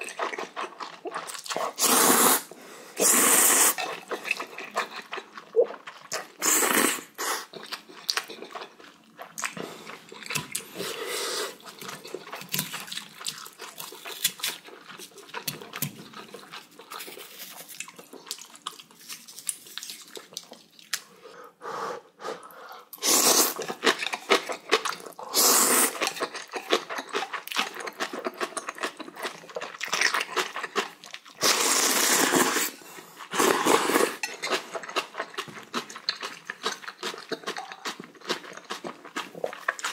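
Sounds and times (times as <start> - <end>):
chewing with wet clicks: 0.0 - 1.8, 3.8 - 6.4, 7.5 - 10.8, 11.6 - 21.1, 23.6 - 25.2, 26.0 - 31.4, 34.2 - 39.9
slurping noodles: 1.6 - 5.0, 6.3 - 7.6, 23.0 - 23.9, 25.2 - 26.2, 31.4 - 35.1.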